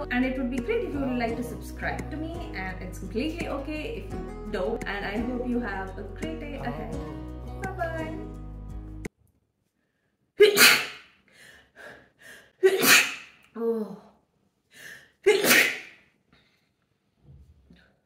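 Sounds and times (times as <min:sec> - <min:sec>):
woman sneezing: 0:10.4 - 0:11.1, 0:12.6 - 0:13.4, 0:15.2 - 0:16.0.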